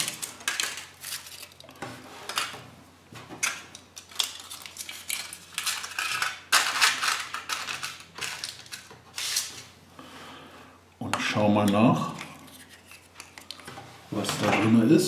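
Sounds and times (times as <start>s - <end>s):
foil wrapper crinkling: 0.0s - 1.7s, 3.4s - 9.6s.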